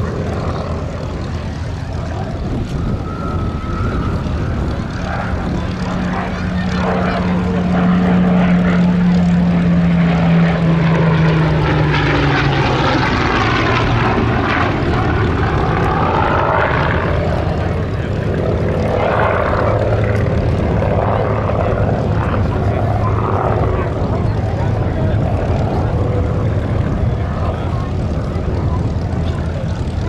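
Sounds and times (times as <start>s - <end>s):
propeller aircraft flying past: 0.0s - 30.0s.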